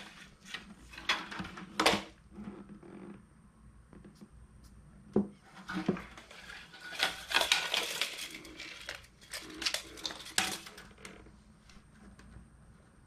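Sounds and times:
tape measure rattling and scraping: 0:05.6 - 0:11.1.

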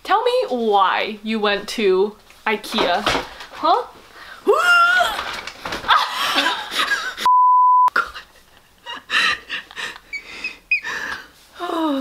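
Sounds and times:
censor bleep: 0:07.3 - 0:07.9
soft giggling and laughter: 0:07.9 - 0:10.9.

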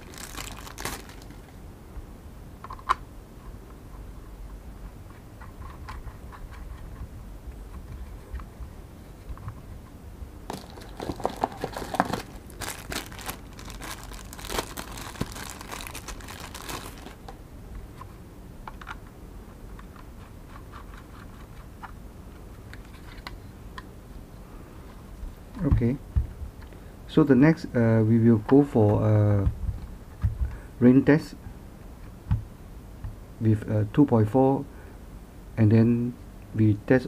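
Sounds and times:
plastic remote controller handling: 0:10.5 - 0:17.2.

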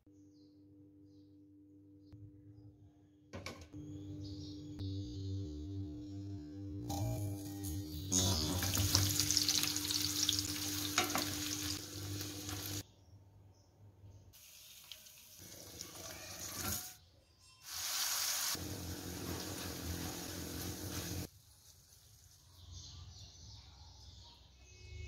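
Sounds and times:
hot oil sizzling in a frying pan: 0:08.2 - 0:12.8, 0:14.4 - 0:17.0, 0:17.6 - 0:21.3.

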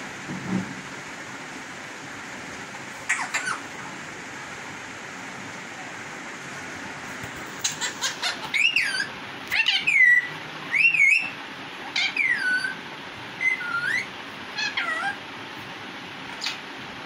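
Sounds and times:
parakeet screaming: 0:03.1 - 0:03.7, 0:07.6 - 0:12.8, 0:13.4 - 0:15.2.

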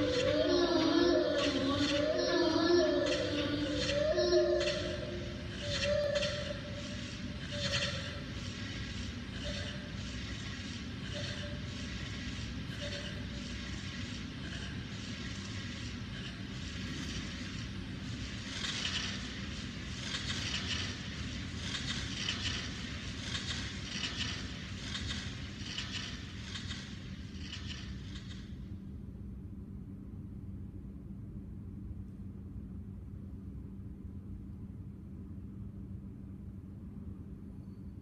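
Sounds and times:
low drone: 0:00.0 - 0:28.7.

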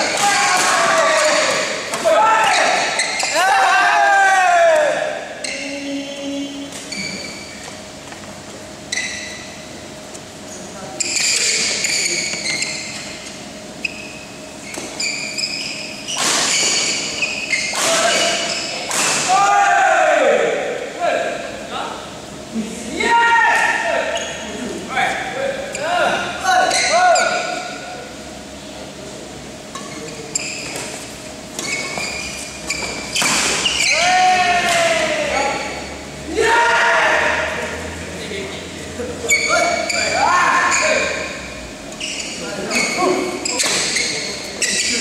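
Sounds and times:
sneakers squeaking on court: 0:02.4 - 0:03.4, 0:05.4 - 0:09.9, 0:11.0 - 0:19.0, 0:29.7 - 0:34.0, 0:39.2 - 0:45.0
racket hitting shuttlecock: 0:16.2 - 0:17.0, 0:17.6 - 0:19.3, 0:33.0 - 0:33.9.

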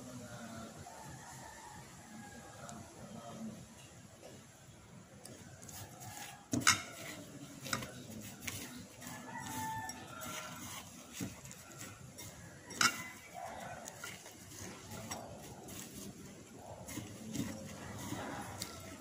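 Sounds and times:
plates and glass bowl clinking: 0:06.5 - 0:16.2
rooster crowing: 0:09.0 - 0:12.0.

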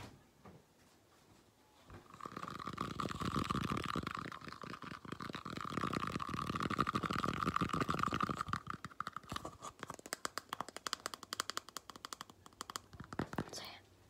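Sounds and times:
fingers scratching plastic container: 0:02.1 - 0:13.6
fingers tapping plastic container: 0:05.2 - 0:13.6.

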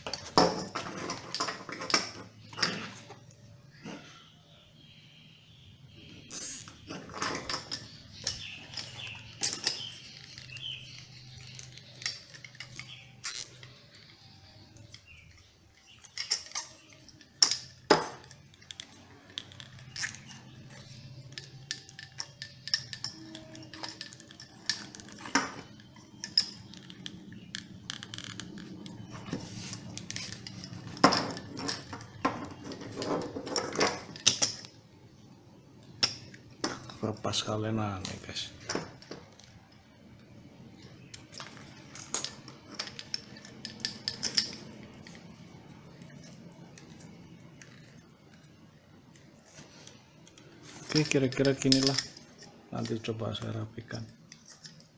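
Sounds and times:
hands handling plastic and hose: 0:06.4 - 0:34.8, 0:41.1 - 0:54.9.

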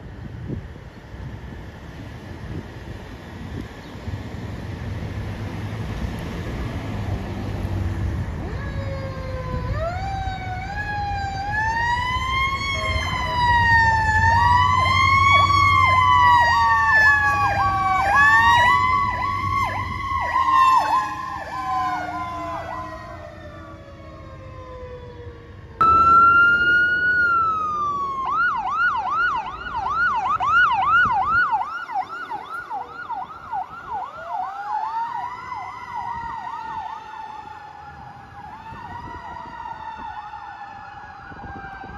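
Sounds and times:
low traffic rumble: 0:00.0 - 0:41.9
wailing siren: 0:06.4 - 0:41.9
fast yelping siren: 0:08.4 - 0:25.2, 0:25.8 - 0:41.9.

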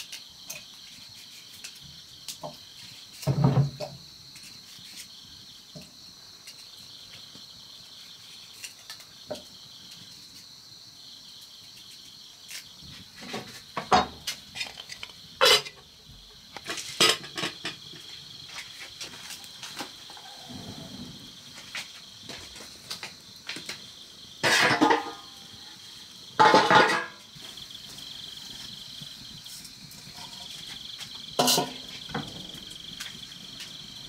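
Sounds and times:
insects chirring: 0:00.0 - 0:34.0
kitchenware clinking and knocking: 0:13.2 - 0:14.8, 0:16.6 - 0:18.0, 0:24.4 - 0:25.4, 0:26.4 - 0:27.2, 0:31.4 - 0:32.6.

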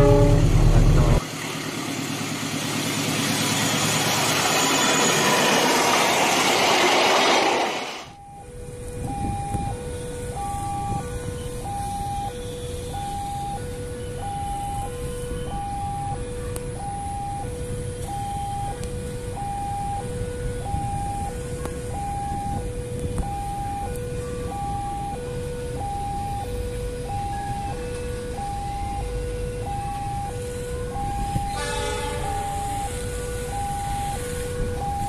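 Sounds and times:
level crossing two-tone alarm: 0:00.0 - 0:01.2, 0:03.6 - 0:35.0
train horn: 0:00.0 - 0:01.2, 0:30.5 - 0:34.8.

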